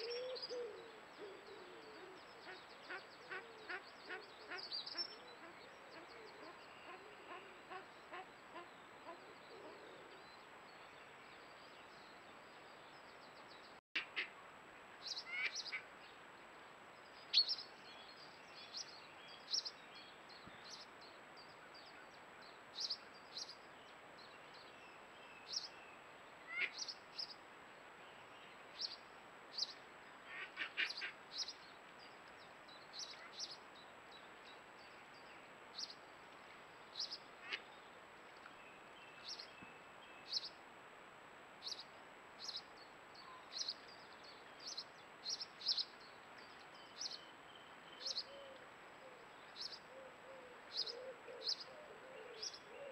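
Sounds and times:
duck-like calls: 30.3s - 31.1s.

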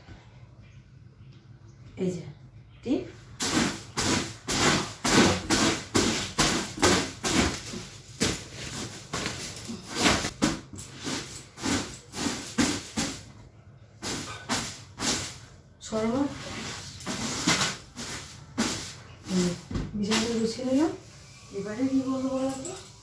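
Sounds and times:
broom sweeping mattress: 3.4s - 13.3s, 14.0s - 22.4s.

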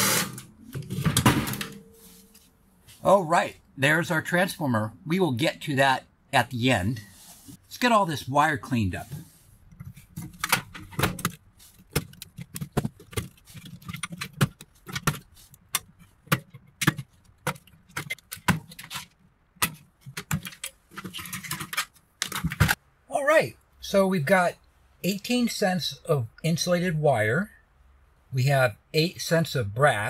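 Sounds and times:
rustling and clatter: 9.1s - 22.8s.

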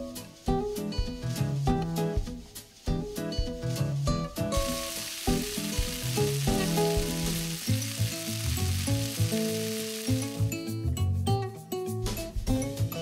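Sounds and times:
background music: 0.0s - 13.0s
food sizzling on grill pan: 4.4s - 10.9s.

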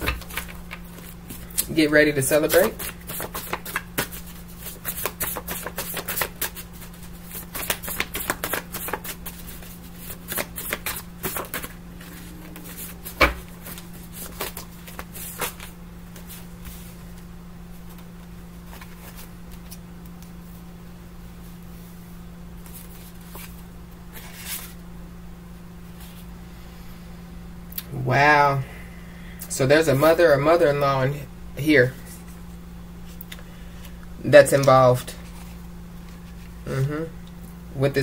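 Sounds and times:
cards being shuffled: 0.0s - 16.9s, 17.8s - 20.3s, 22.6s - 24.8s
steady low hum: 0.0s - 38.0s.

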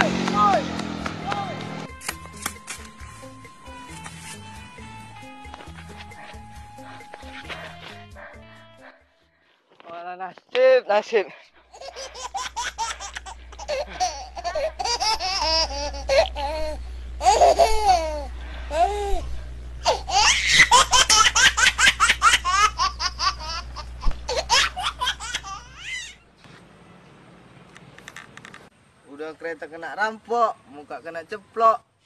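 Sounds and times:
people laughing: 11.8s - 16.4s.

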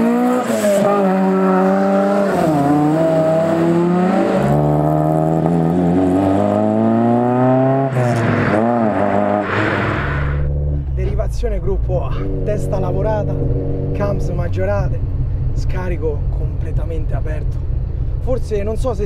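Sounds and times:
car accelerating hard: 0.0s - 11.1s, 12.1s - 14.7s.

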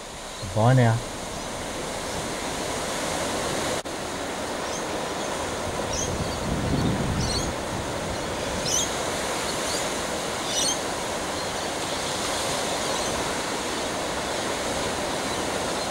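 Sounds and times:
low rumble: 0.0s - 3.8s
ocean surf breaking: 0.0s - 15.9s.

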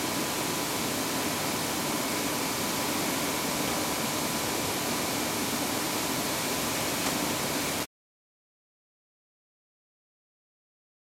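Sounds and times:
industrial machinery hiss: 0.0s - 7.9s.

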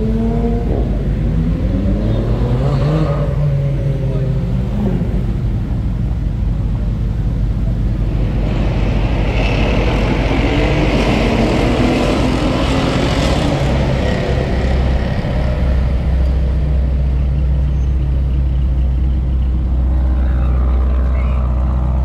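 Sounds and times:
steady low rumble: 3.3s - 22.0s
car engine revving hard: 9.1s - 14.9s.

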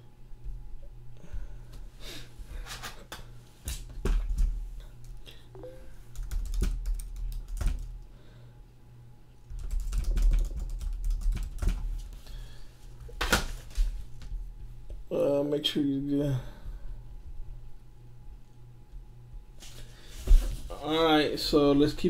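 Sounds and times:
typing on computer keyboard: 6.1s - 7.9s, 9.5s - 11.8s.

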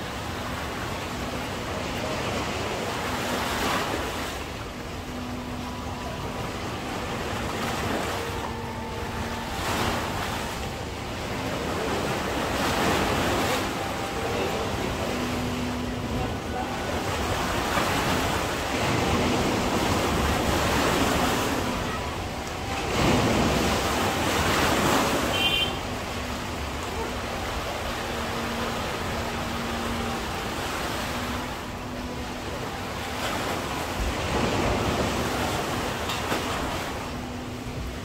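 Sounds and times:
sea waves breaking on beach: 0.0s - 38.0s.

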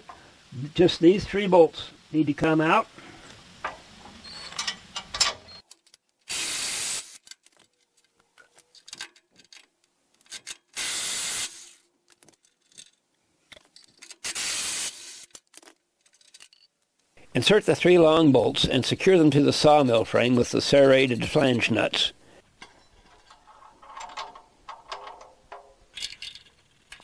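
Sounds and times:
small metallic handling clicks: 7.2s - 10.7s, 15.3s - 17.0s, 22.6s - 27.0s.

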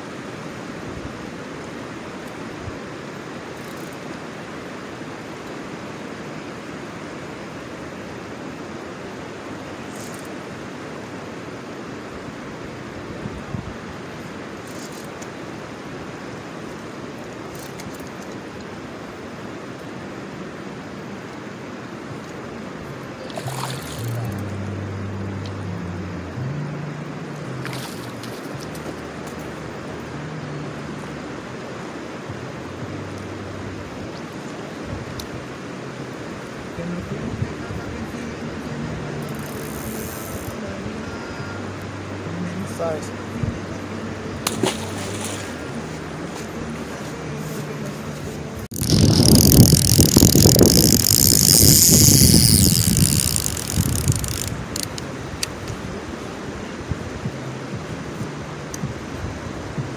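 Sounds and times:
rushing outdoor background noise: 0.0s - 59.9s
reel clicks: 3.5s - 4.1s, 9.8s - 10.4s, 14.6s - 15.4s, 17.5s - 18.4s, 23.3s - 24.6s, 39.2s - 40.6s, 48.7s - 55.6s
low hum: 22.0s - 55.2s
low rumble: 22.8s - 31.5s
fishing reel ratchet buzzing: 23.4s - 24.5s, 39.3s - 40.6s, 48.7s - 55.0s.

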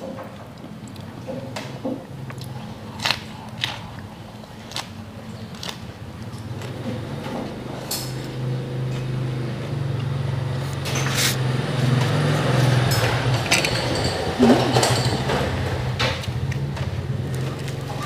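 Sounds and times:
crunchy chewing of lettuce: 0.5s - 14.0s, 16.2s - 18.0s
vehicle engine hum: 6.3s - 18.0s.

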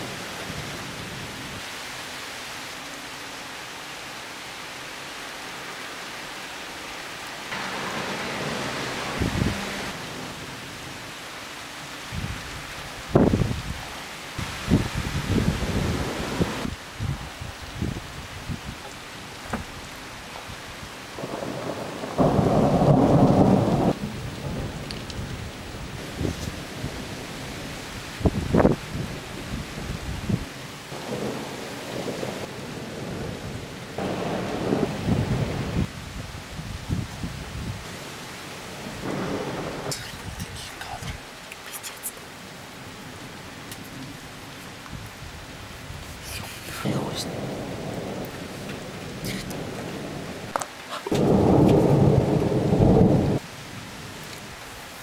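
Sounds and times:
heavy rain hissing: 0.0s - 55.0s
low rumble of thunder: 7.5s - 10.6s, 14.4s - 18.8s, 21.1s - 37.9s, 38.8s - 40.7s, 46.9s - 50.5s, 51.1s - 53.5s.

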